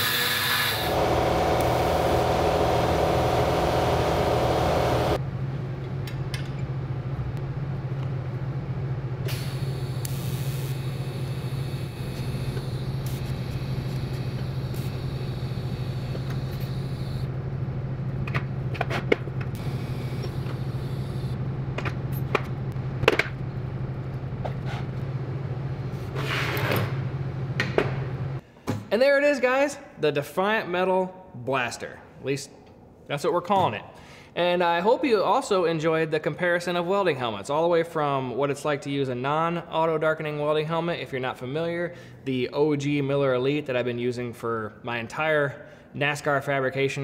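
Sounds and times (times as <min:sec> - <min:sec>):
grinder on metal: 0:00.0 - 0:05.2
steady hum: 0:00.9 - 0:26.2
welding arc hissing: 0:09.3 - 0:17.3, 0:19.6 - 0:21.4.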